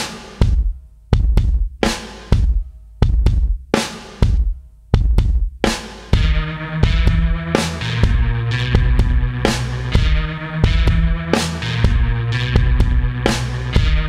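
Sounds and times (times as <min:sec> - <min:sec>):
heavy bass drum beat: 0:00.0 - 0:14.0
sustained chords: 0:06.2 - 0:14.0.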